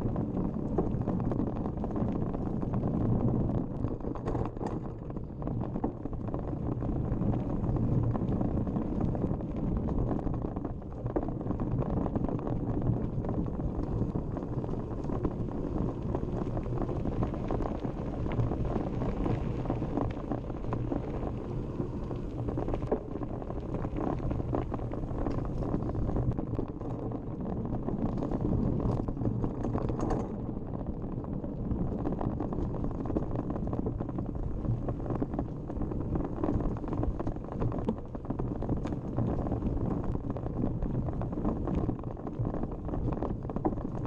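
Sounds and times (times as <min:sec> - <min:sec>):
bike tyres rumbling on gravel: 0:00.0 - 0:44.0
wind buffeting microphone: 0:00.0 - 0:44.0
bike rattling and clicking: 0:04.0 - 0:05.9, 0:28.0 - 0:31.0.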